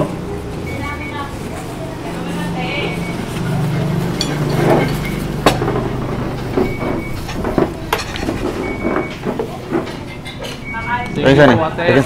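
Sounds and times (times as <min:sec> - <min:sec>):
dishes clinking on table: 0:04.2 - 0:05.8, 0:06.6 - 0:10.7.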